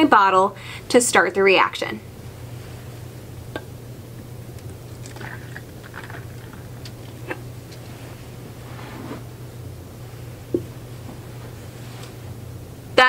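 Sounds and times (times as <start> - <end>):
steady low hum: 0.0 - 13.0
liquid pouring into plastic bottle: 4.6 - 7.4.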